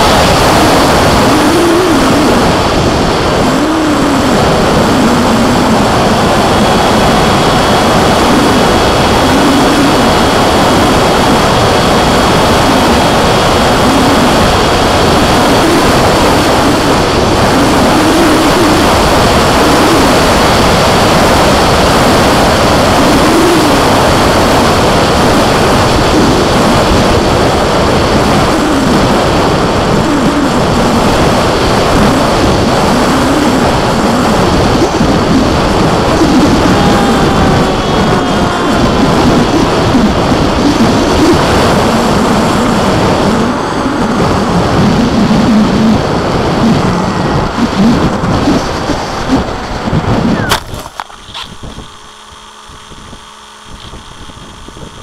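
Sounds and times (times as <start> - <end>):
propeller and electric motor hum: 0.0 - 55.0
wind rushing over microphone: 0.0 - 55.0.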